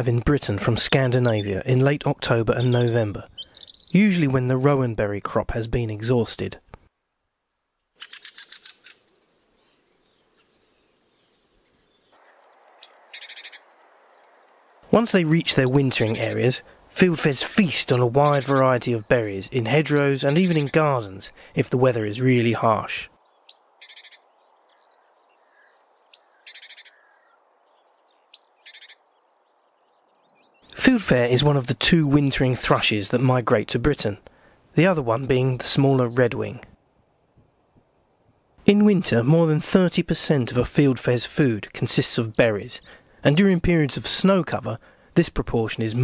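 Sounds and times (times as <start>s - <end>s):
faint high bird calls: 0.0s - 4.2s, 6.6s - 7.4s, 8.0s - 16.7s, 17.6s - 21.3s, 23.1s - 31.2s, 32.2s - 32.7s, 41.5s - 43.4s
faint outdoor hiss: 0.0s - 46.0s
bird chattering call: 8.0s - 10.4s, 12.8s - 14.4s, 15.5s - 16.5s, 17.6s - 18.8s, 19.7s - 21.0s, 23.4s - 24.3s, 25.4s - 27.4s, 28.2s - 29.1s, 30.4s - 31.2s, 32.2s - 32.6s
bird call with rattling chatter: 12.7s - 14.8s, 15.6s - 16.5s, 17.7s - 18.8s, 19.9s - 20.8s, 23.5s - 24.2s, 28.4s - 29.0s, 32.3s - 32.6s.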